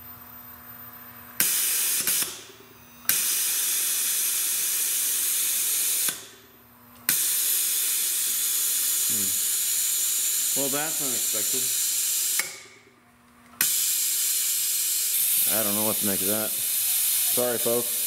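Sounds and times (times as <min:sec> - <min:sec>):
compressed air hissing: 0:01.4 - 0:02.4, 0:03.1 - 0:06.3, 0:07.1 - 0:12.6, 0:13.6 - 0:18.0.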